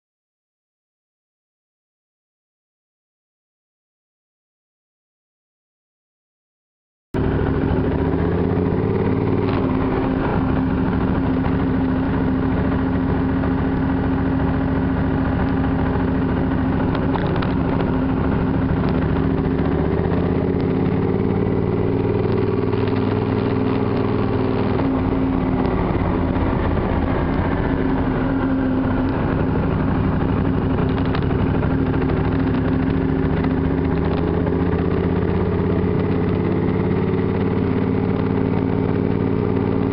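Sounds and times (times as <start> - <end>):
motorcycle engine running: 7.2 - 39.9.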